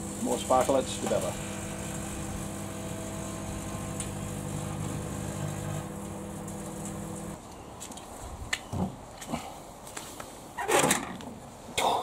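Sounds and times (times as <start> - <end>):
electrical arcing: 0.0 - 7.4
microwave oven humming: 0.0 - 7.4.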